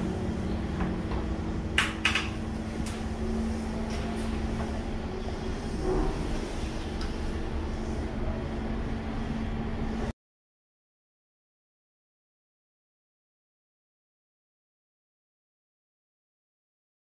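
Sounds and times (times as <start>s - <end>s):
low hum and rumble: 0.0s - 10.1s.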